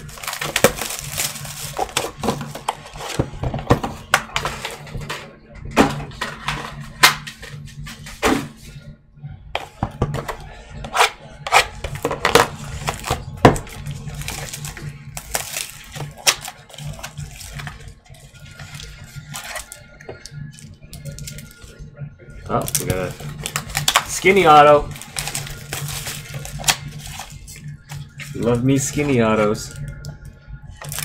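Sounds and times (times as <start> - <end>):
plastic wrap crinkling: 0.0 - 3.3, 11.9 - 21.7, 22.6 - 30.1.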